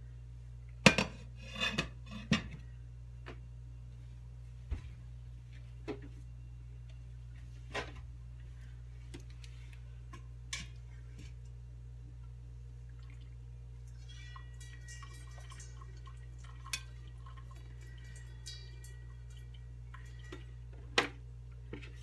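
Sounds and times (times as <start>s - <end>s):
low hum: 0.0s - 22.0s
water dripping on metal: 12.9s - 20.8s.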